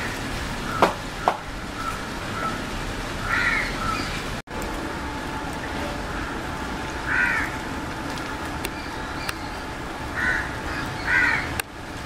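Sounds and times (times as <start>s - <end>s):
crow cawing: 3.2s - 4.1s, 7.1s - 7.6s, 10.2s - 11.6s.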